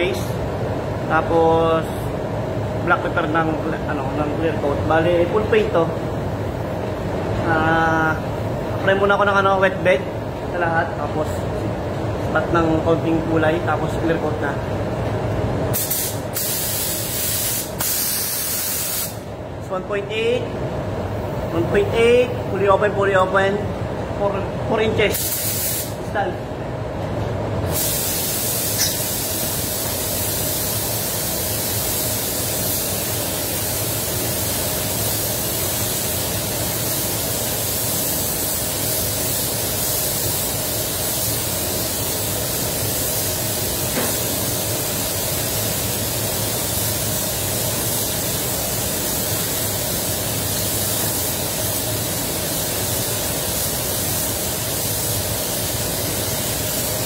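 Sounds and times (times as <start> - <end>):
spray booth fans droning: 0.0 - 57.0
paint spray gun hissing: 15.8 - 19.2, 25.1 - 26.0, 27.7 - 57.0.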